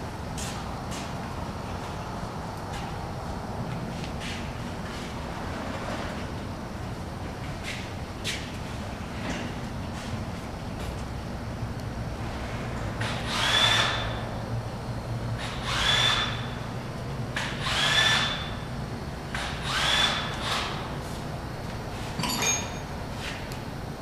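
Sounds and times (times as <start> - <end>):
low mechanical hum: 0.0 - 24.0
power tool whining: 19.4 - 20.7.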